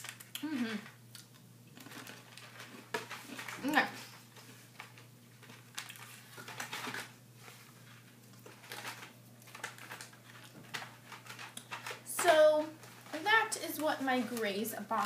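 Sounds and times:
packaging rustling and knocking: 4.8s - 7.2s, 8.4s - 13.5s.

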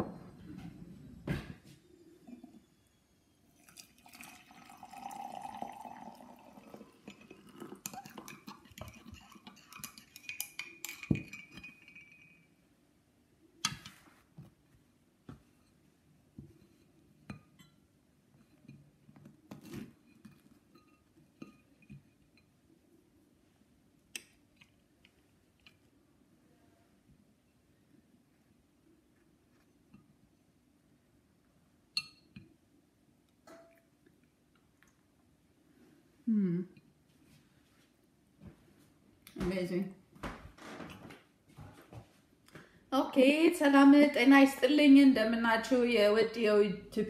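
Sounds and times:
crockery and knife clinking: 7.1s - 12.6s.

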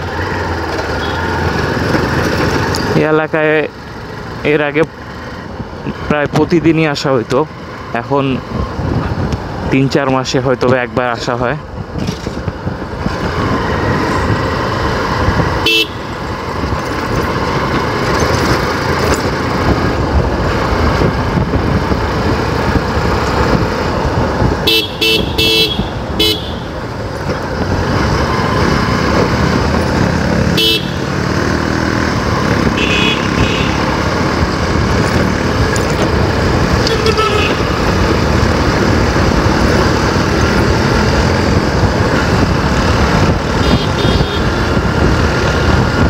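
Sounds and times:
motorcycle engine running: 0.0s - 3.0s, 12.1s - 46.0s
wind and road noise: 0.0s - 46.0s
short horn beeps: 24.7s - 26.7s.

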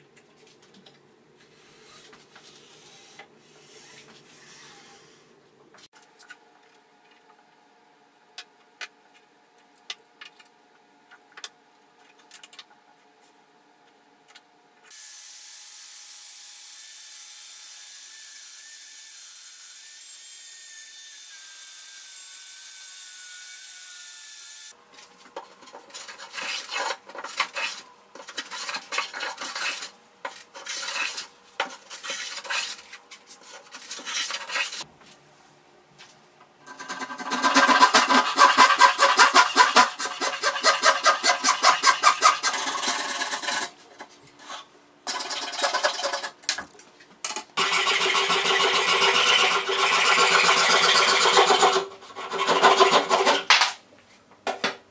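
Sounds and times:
pencil and metal squares on wood: 25.3s - 34.9s, 36.7s - 43.8s
hand saw rasping: 36.7s - 43.7s, 47.6s - 53.5s.

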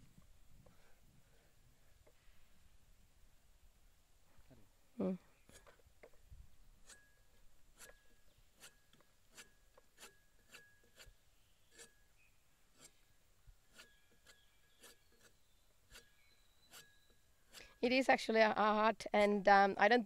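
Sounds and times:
knife scraping strokes: 7.8s - 12.0s, 12.7s - 13.0s, 13.7s - 17.8s.

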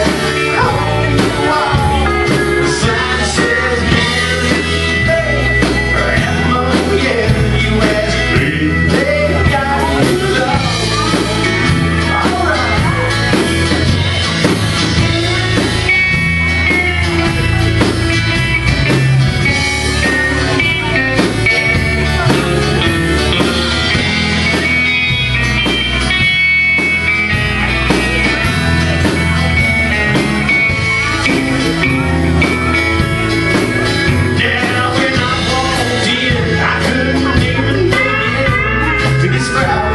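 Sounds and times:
live country band playing: 0.0s - 39.9s.

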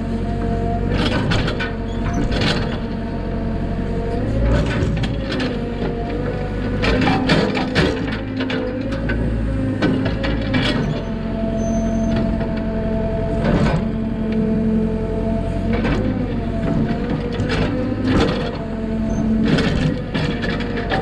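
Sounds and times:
excavator engine and hydraulic drone: 0.0s - 21.0s.

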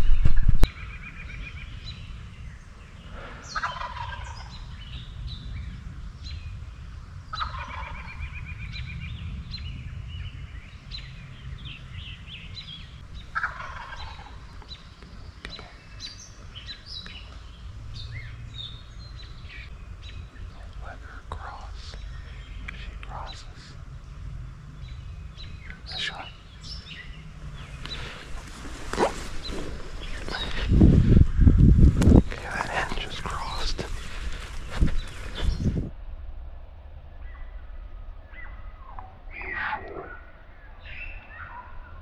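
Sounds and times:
songbirds chirping: 0.0s - 36.0s, 37.1s - 42.0s
turkey gobbling: 3.5s - 4.4s, 7.4s - 7.9s, 13.3s - 14.4s.

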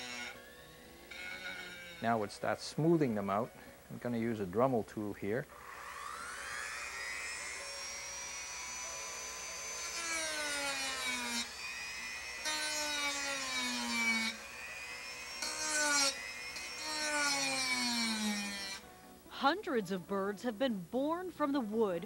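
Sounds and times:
rotary tool sanding wood: 0.0s - 2.3s, 5.5s - 18.9s.

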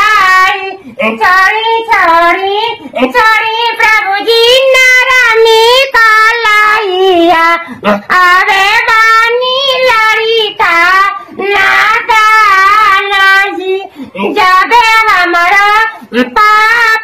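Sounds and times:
man singing in falsetto: 15.8s - 17.0s.

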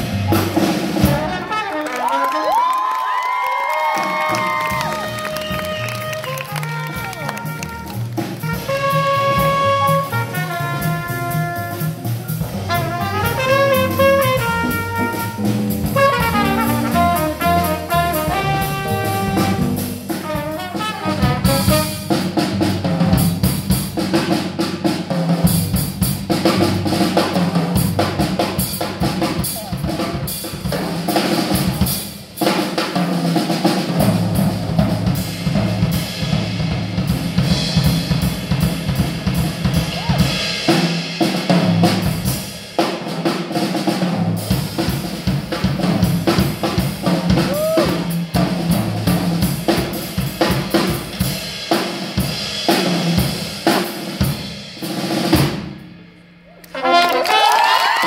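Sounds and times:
drum kit solo: 0.0s - 58.0s
saxophone and trumpet melody: 0.3s - 2.6s, 4.6s - 22.4s, 56.7s - 57.8s.

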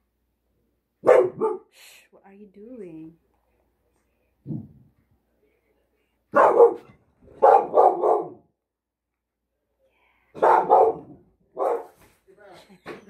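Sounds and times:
dog barking: 1.0s - 1.7s, 6.3s - 8.5s, 10.4s - 12.0s.

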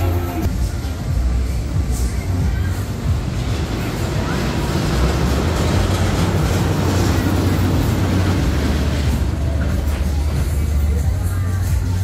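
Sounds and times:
fairground ride rushing: 0.0s - 12.0s.

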